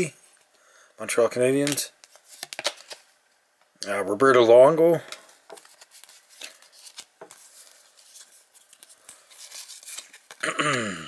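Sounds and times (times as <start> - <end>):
cards rubbing and clicking: 1.6 - 3.0, 5.5 - 10.4.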